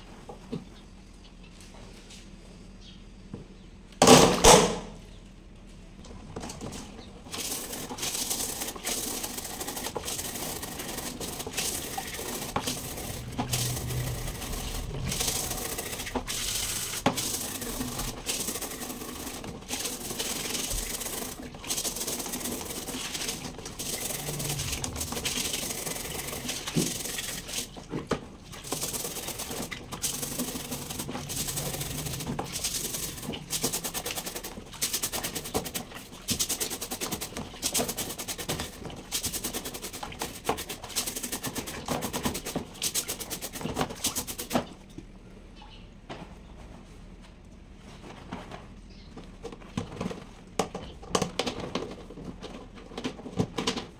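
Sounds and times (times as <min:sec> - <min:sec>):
brush scrubbing grille: 0:07.3 - 0:44.6.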